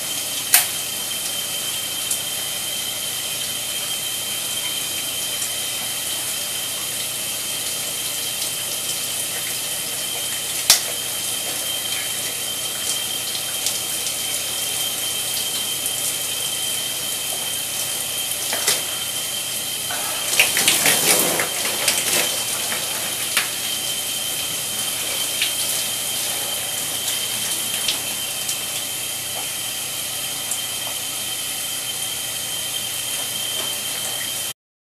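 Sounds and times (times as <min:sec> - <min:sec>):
shower spray running: 0:00.0 - 0:34.6
beer splashing from a can: 0:19.9 - 0:28.0.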